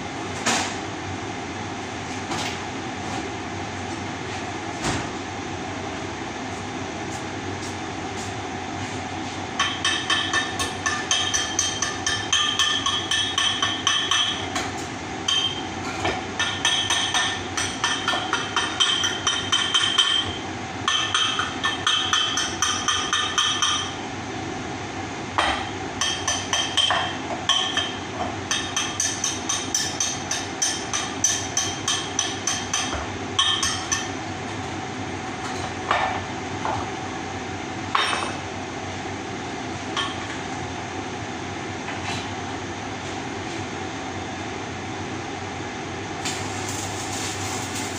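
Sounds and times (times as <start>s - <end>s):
steady mechanical hum: 0.0s - 47.9s
hammer striking metal pipe: 9.6s - 14.7s, 15.3s - 15.6s, 16.4s - 24.0s, 25.4s - 34.2s.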